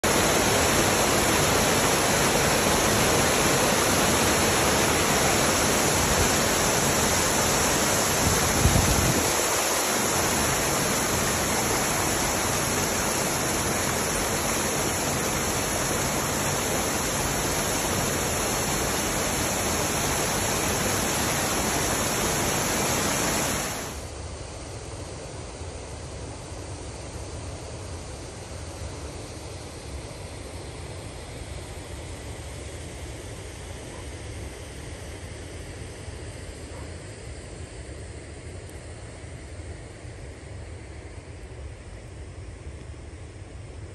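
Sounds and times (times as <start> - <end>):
water rushing through drain grate: 0.0 - 24.0.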